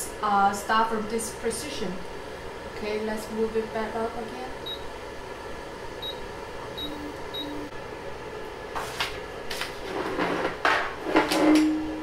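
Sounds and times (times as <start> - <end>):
short beeps: 6.8 - 7.7.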